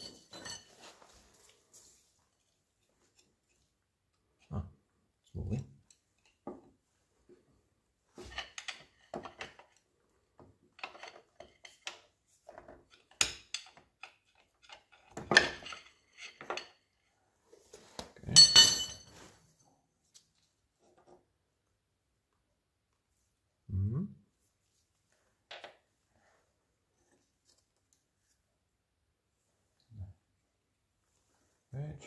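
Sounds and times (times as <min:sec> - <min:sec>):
sharp metal clank: 0:18.4 - 0:19.0.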